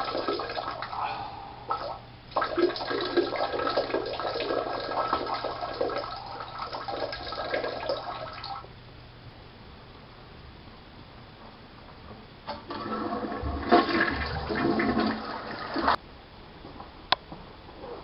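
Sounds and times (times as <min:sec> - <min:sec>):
toilet flushing: 0:00.0 - 0:01.0, 0:01.7 - 0:08.7, 0:12.5 - 0:16.0
faint steady hiss: 0:00.0 - 0:18.0.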